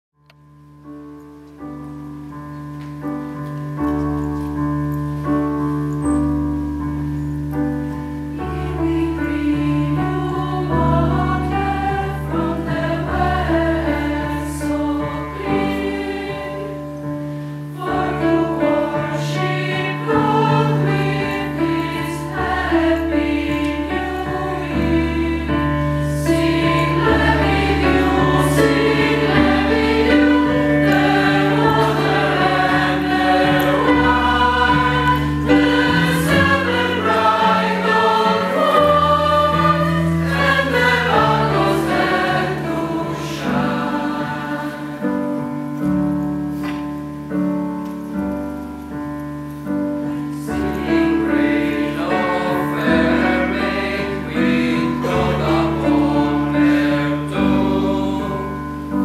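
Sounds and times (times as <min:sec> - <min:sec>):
choir singing: 0:08.2 - 0:45.6, 0:50.2 - 0:59.0.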